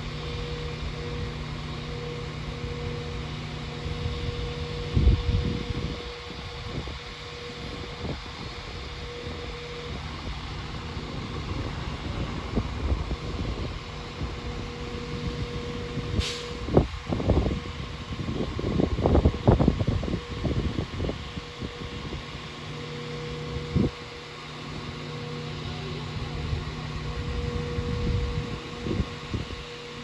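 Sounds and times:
train engines idling: 0.0 - 30.0
air hiss: 16.2 - 16.7.

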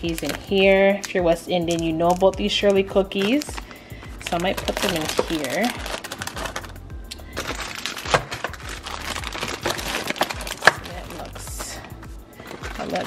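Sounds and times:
plastic wrappers crinkling: 0.0 - 13.0.

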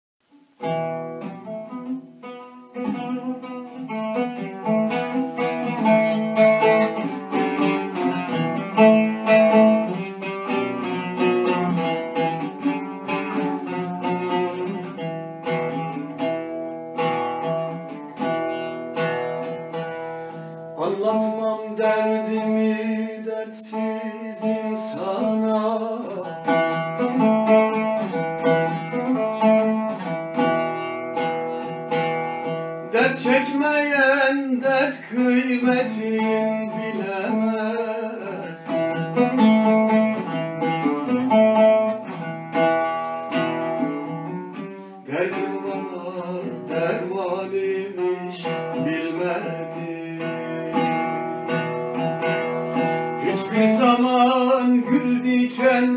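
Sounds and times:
oud playing: 0.2 - 55.9
man singing: 20.8 - 30.2, 32.8 - 40.4, 43.8 - 55.9.

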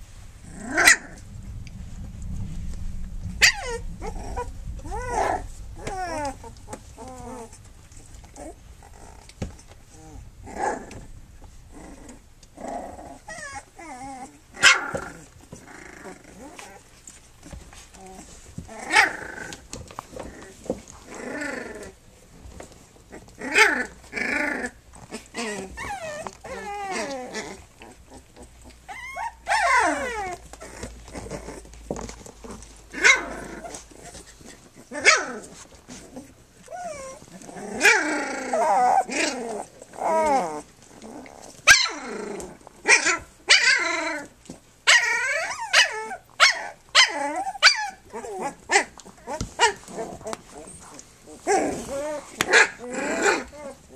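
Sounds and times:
puppies high calls: 3.4 - 7.6, 23.3 - 31.7, 41.4 - 53.9.

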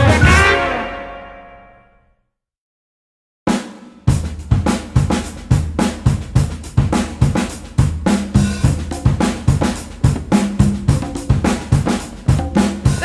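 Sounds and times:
drum kit groove: 0.0 - 0.8, 3.5 - 13.0
bass notes: 0.0 - 1.6.

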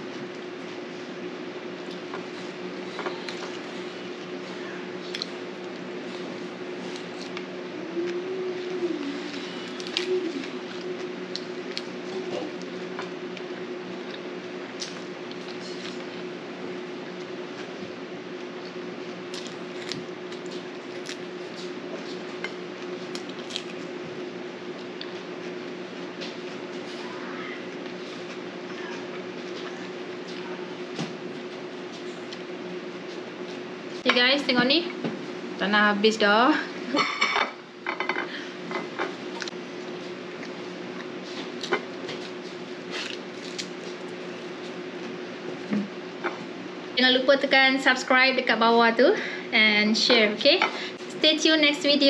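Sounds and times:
steady hum: 0.0 - 52.0
wet chewing: 40.2 - 44.7.

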